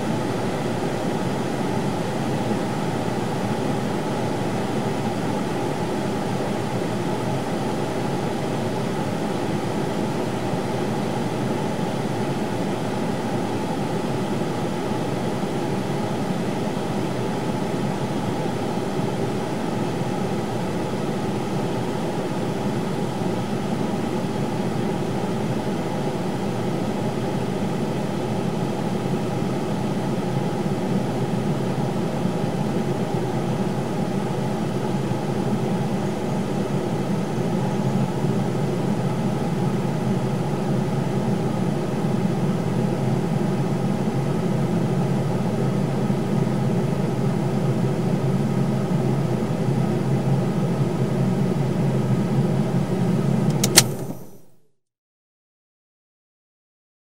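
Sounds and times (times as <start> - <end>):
heater blower fan humming: 49.8 - 54.4
sharp click: 53.5 - 54.4.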